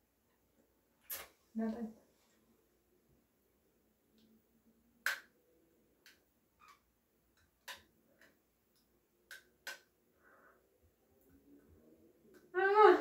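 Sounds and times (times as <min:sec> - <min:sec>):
dental floss snapping clicks: 0:09.3 - 0:09.9.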